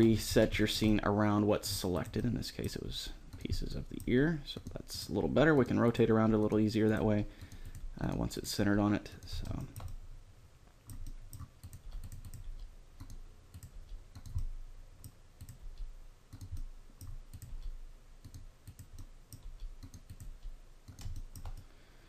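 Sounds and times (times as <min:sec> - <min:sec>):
keyboard and mouse clicks: 0:09.2 - 0:10.0, 0:10.8 - 0:21.7.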